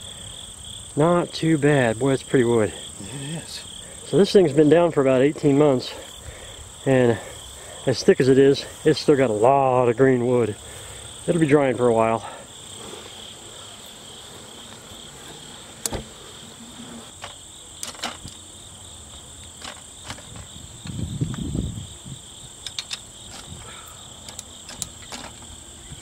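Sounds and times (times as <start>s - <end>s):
insects chorus: 0.0s - 26.0s
metal clicks and knocks: 17.2s - 18.4s, 22.6s - 23.6s, 24.2s - 25.5s.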